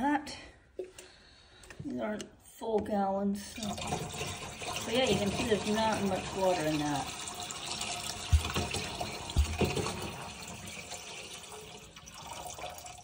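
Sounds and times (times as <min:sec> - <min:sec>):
water pouring and splashing: 0:03.6 - 0:13.0.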